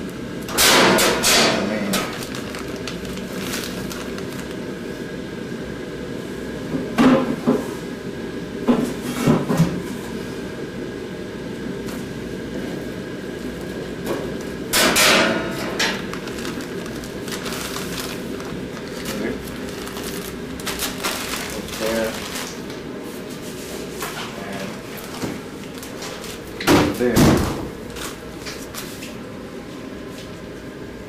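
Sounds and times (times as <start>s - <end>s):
plastic bag crinkling: 1.8s - 4.7s, 15.8s - 22.8s
background hum: 13.5s - 26.9s.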